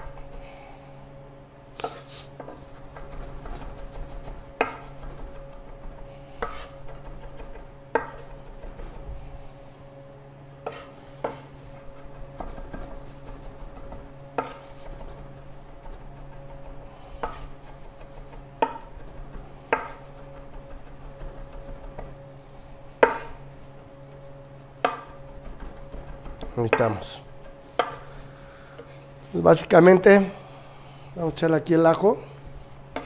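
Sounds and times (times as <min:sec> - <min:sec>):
steady low hum: 0:00.0 - 0:33.0
knife chopping on wooden board: 0:01.8 - 0:05.8, 0:06.4 - 0:08.9, 0:10.6 - 0:22.2, 0:23.0 - 0:23.4, 0:24.8 - 0:28.0.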